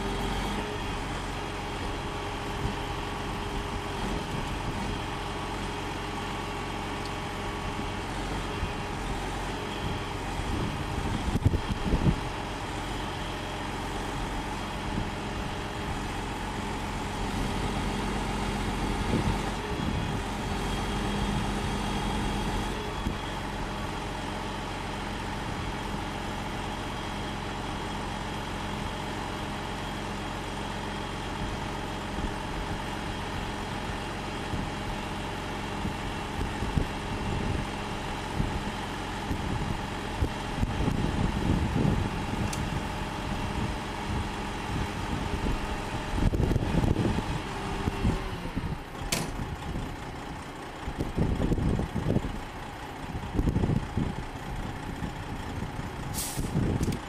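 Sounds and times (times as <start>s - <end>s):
diesel truck engine idling: 0.0s - 57.0s
sharp click: 49.1s - 49.4s.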